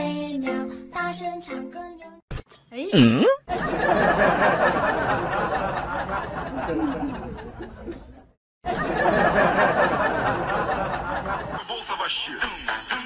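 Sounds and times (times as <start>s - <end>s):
crowd chattering and laughing: 3.5s - 12.0s.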